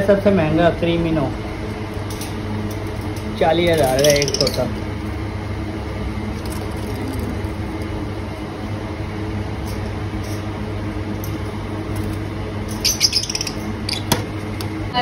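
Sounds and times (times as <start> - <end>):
steady low hum: 0.0 - 15.0
lovebirds chirping and squawking: 3.7 - 4.8, 12.7 - 14.3.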